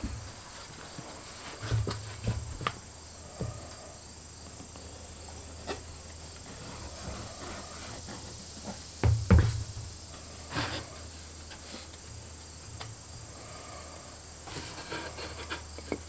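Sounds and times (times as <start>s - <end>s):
wood pieces knocking on workbench: 9.0s - 9.9s.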